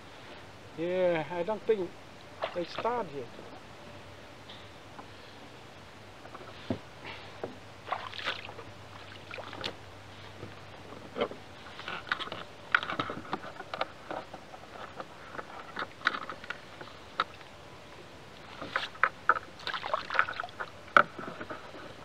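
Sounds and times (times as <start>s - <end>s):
water splashing against kayak: 7.8s - 9.8s, 18.4s - 21.6s.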